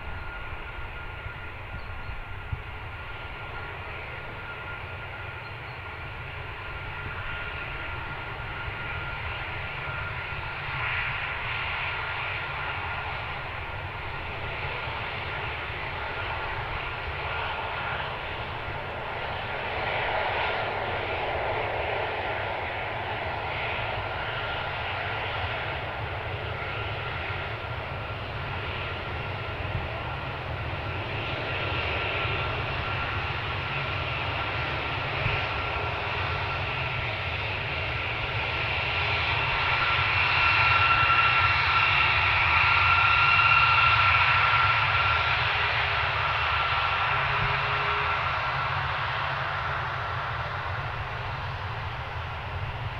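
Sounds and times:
jet engines rumbling with whine: 0:00.0 - 0:52.9.

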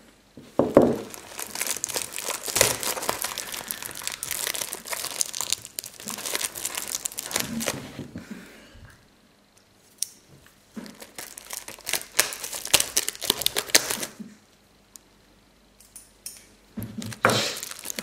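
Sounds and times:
plastic shrink wrap crinkling: 0:00.6 - 0:08.2, 0:10.7 - 0:14.2, 0:16.8 - 0:18.0.

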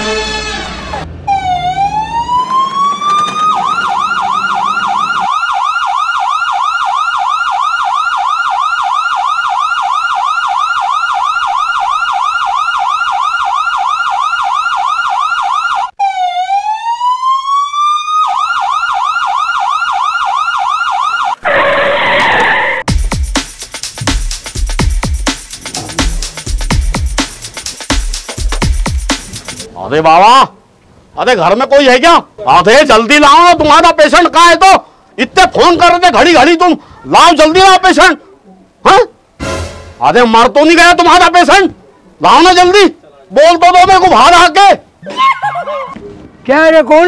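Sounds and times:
ambulance siren wailing: 0:00.0 - 0:22.9
rushing noise: 0:21.4 - 0:29.7.

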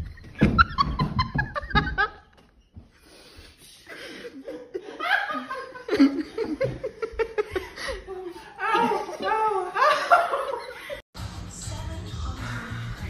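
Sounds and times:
woman laughing shrilly: 0:07.3 - 0:11.0.

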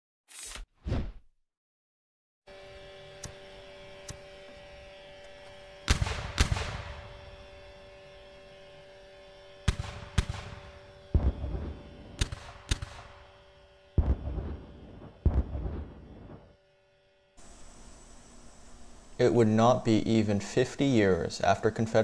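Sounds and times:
low droning hum: 0:02.5 - 0:22.0
artillery booms: 0:05.9 - 0:07.0, 0:14.0 - 0:16.5
sharp gunshots: 0:05.9 - 0:07.2, 0:09.6 - 0:13.3, 0:14.0 - 0:16.5.

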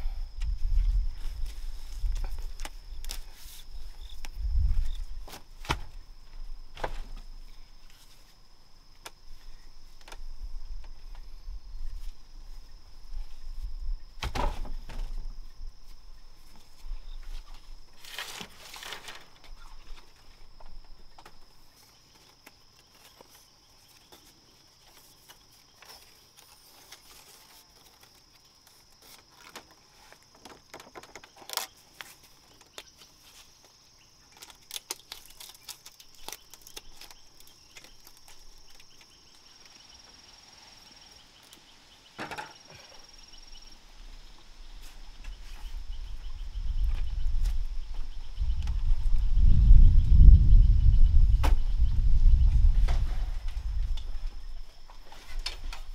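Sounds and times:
knocks and snaps of wood: 0:14.2 - 0:15.0, 0:42.2 - 0:42.6.

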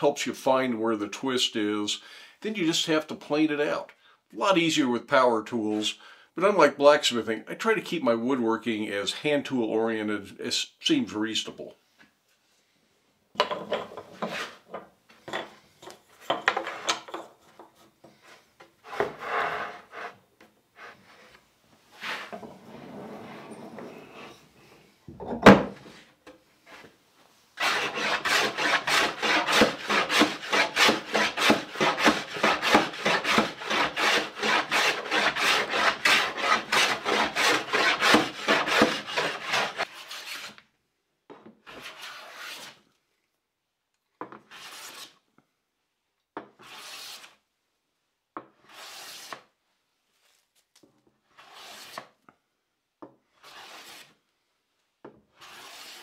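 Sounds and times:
hand plane shaving wood: 0:18.8 - 0:20.2, 0:27.6 - 0:40.6, 0:41.7 - 0:42.8, 0:44.5 - 0:45.2, 0:46.6 - 0:47.4, 0:48.6 - 0:49.5, 0:51.4 - 0:52.2, 0:53.4 - 0:54.1, 0:55.4 - 0:56.0.

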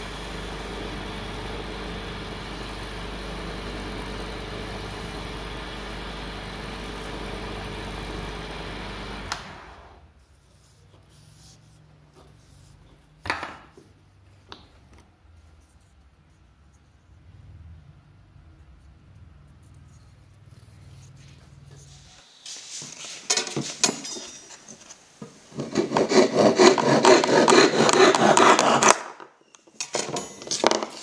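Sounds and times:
wood lathe running: 0:00.0 - 0:10.0, 0:25.6 - 0:29.0
pad rubbing spinning wood: 0:25.5 - 0:29.0.

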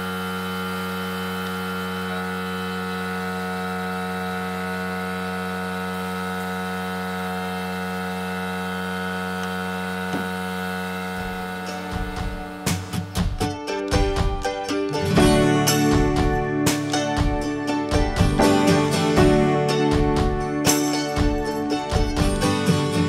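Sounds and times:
air compressor motor humming: 0:00.0 - 0:13.5.

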